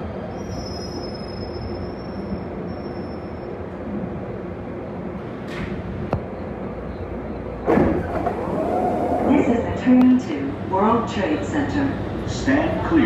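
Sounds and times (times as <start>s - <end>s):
subway car rumble and hum: 0.0s - 13.0s
sliding doors clattering open: 7.6s - 9.4s.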